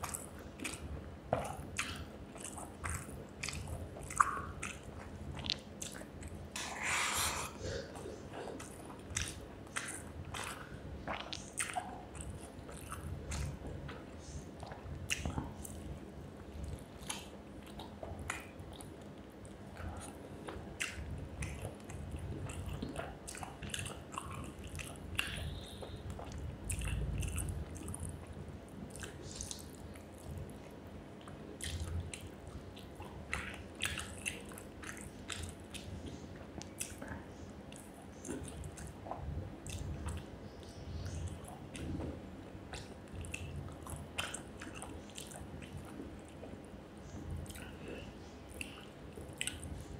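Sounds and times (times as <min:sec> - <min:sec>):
person chewing food: 0:00.0 - 0:49.9.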